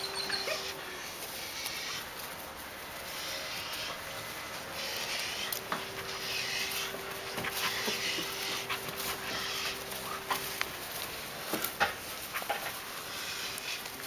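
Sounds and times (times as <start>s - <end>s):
puppy panting: 0.0s - 2.0s, 4.8s - 11.6s.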